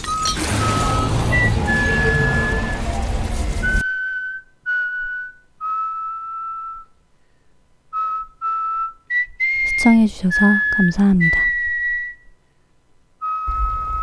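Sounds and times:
background music: 0.0s - 3.9s
person whistling a melody: 0.0s - 7.0s, 7.9s - 12.4s, 13.2s - 14.0s.

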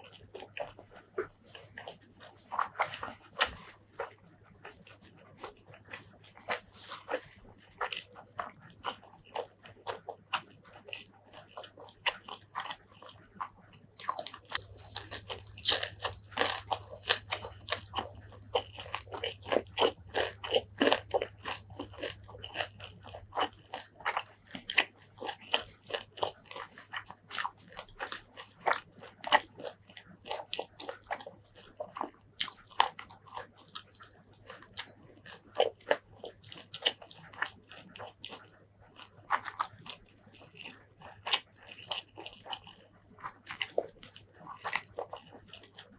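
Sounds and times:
person chewing crisp greens: 0.0s - 45.9s.

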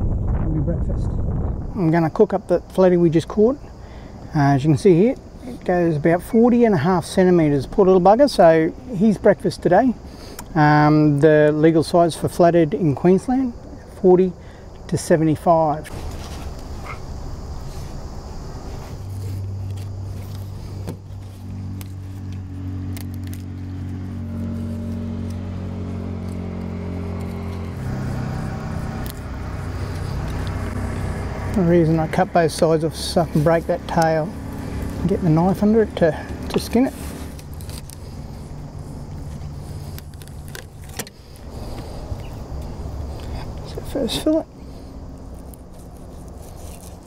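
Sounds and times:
engine humming: 1.4s - 47.0s.

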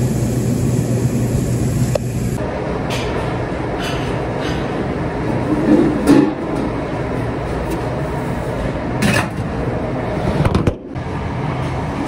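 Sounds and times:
dish room machinery din: 0.0s - 8.1s.

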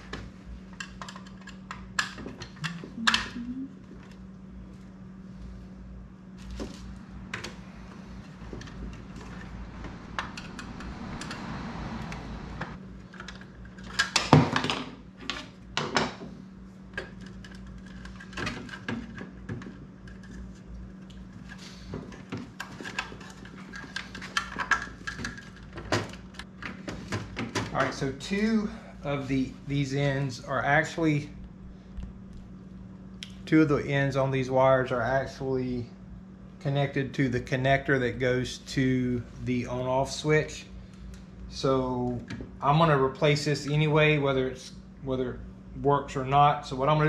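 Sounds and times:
clicks and clatter of parts: 0.0s - 4.2s, 8.2s - 11.5s, 12.7s - 16.3s, 16.9s - 28.0s
steady low hum: 0.0s - 47.0s.

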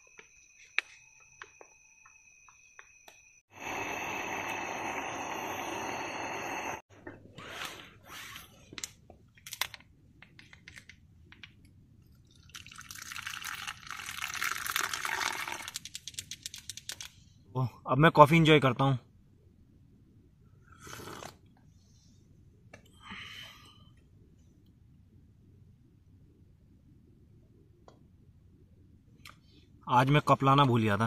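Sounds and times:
loud steady hiss: 3.5s - 6.8s
liquid pouring and dripping: 12.0s - 16.8s.

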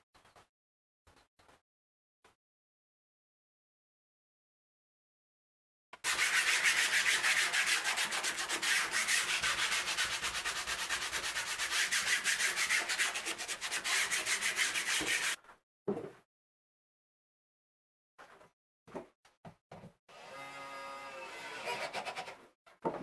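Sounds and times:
hand sanding wood: 6.0s - 15.4s.

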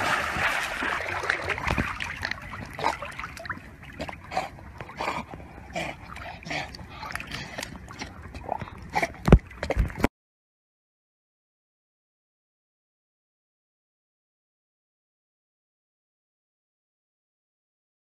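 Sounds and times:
water sloshing: 0.0s - 10.1s.

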